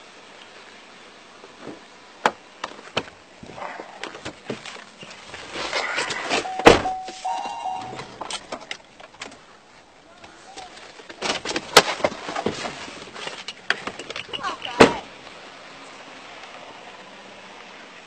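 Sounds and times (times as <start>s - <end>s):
short steady tone: 6.5s - 8.3s
clicks and rustling: 10.2s - 15.0s.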